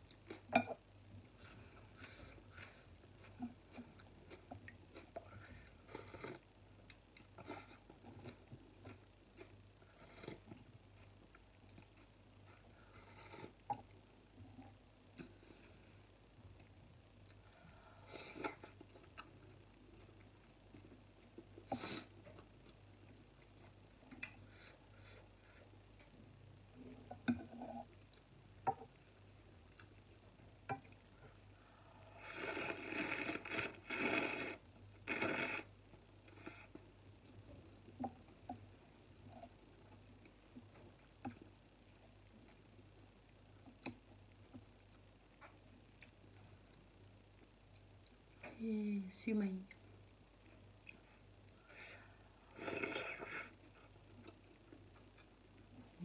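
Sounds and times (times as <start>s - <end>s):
soft chewing: 0.0s - 48.6s, 49.6s - 56.0s
slurping broth from a spoon: 32.2s - 35.7s.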